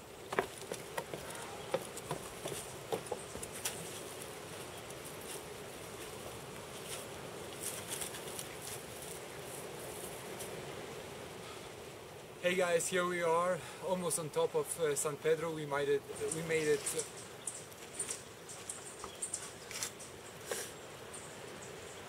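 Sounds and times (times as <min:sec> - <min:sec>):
small clicks and rustles: 0:06.8 - 0:09.2.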